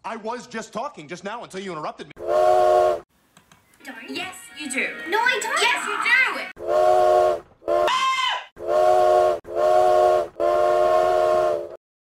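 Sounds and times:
train horn blasts: 0:06.6 - 0:07.9, 0:08.6 - 0:11.8.

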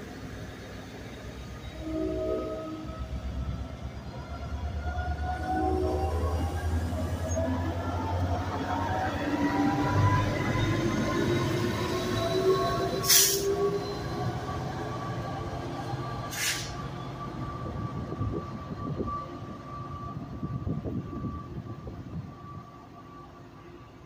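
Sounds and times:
diesel locomotive engine under load: 0:00.0 - 0:24.0
short air hisses: 0:13.1 - 0:13.5, 0:16.3 - 0:16.8.

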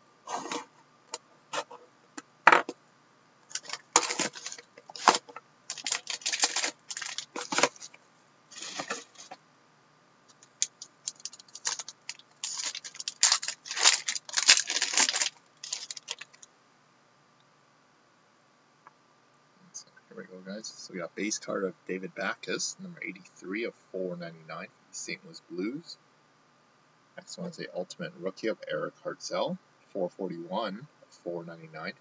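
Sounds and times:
foil and cardboard crinkling: 0:03.5 - 0:09.4, 0:10.6 - 0:16.5.

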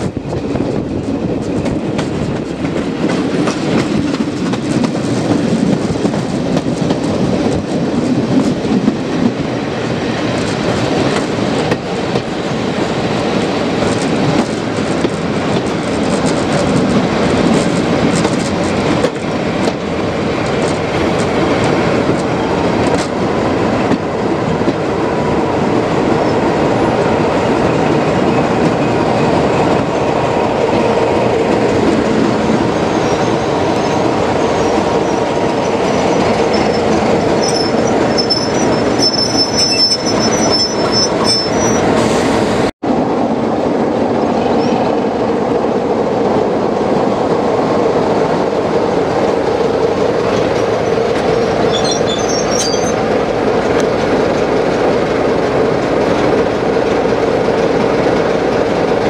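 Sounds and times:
high wheel squeal: 0:32.6 - 0:42.3, 0:50.3 - 0:53.0.

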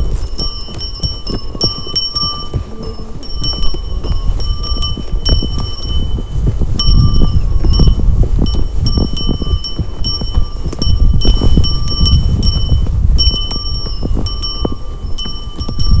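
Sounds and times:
small bell ringing: 0:00.0 - 0:16.0.

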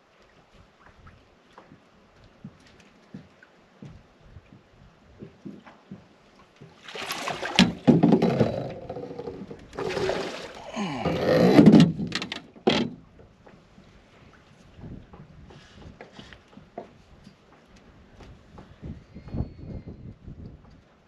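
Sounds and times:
fish thrashing and splashing: 0:06.8 - 0:11.1.

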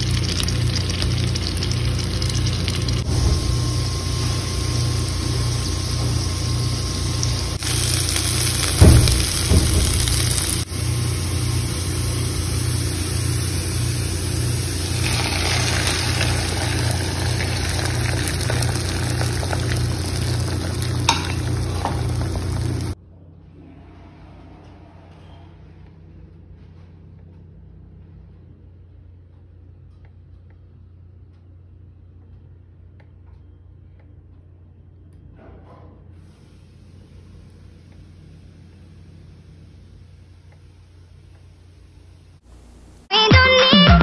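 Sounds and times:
food sizzling in a pan: 0:00.0 - 0:23.0
loud knock: 0:08.7 - 0:10.6.

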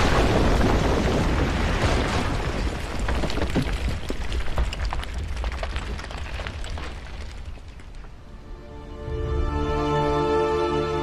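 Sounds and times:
crackles and pops: 0:00.0 - 0:08.2.

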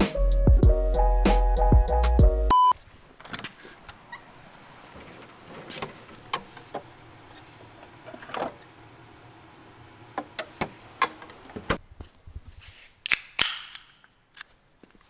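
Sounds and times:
mini fridge opening: 0:03.3 - 0:08.8.

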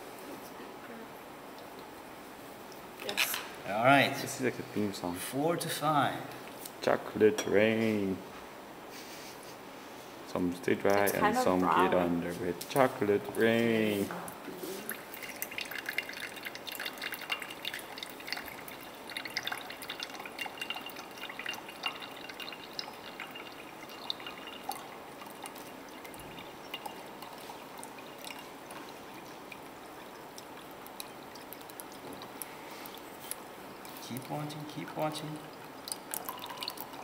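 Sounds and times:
liquid trickling between beakers: 0:10.3 - 0:37.0
liquid dripping: 0:12.6 - 0:37.0.

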